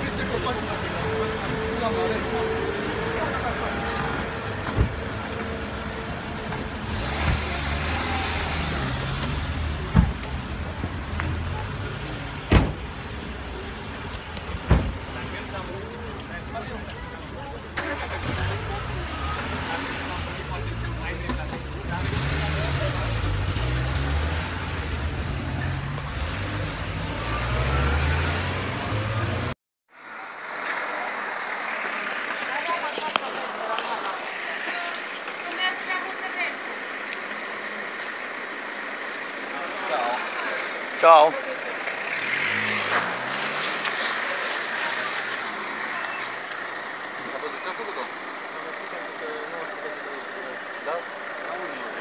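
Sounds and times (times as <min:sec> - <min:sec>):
car engine rumble: 0:00.0 - 0:52.0
street noise: 0:00.0 - 0:52.0
car door slamming: 0:12.5 - 0:12.8.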